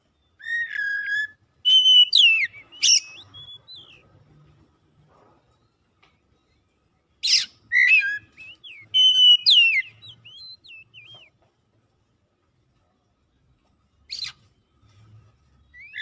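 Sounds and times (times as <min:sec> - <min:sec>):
bird singing: 0:00.0 - 0:04.2, 0:07.2 - 0:11.3, 0:15.7 - 0:16.0.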